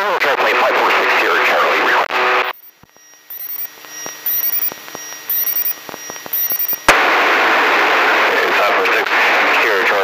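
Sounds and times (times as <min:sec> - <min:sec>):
radio squelch hiss: 0:01.2 - 0:10.0
faint electronic tones: 0:02.3 - 0:06.9
high-pitched electronic beep: 0:02.4 - 0:06.9
radio clicks: 0:02.5 - 0:07.0.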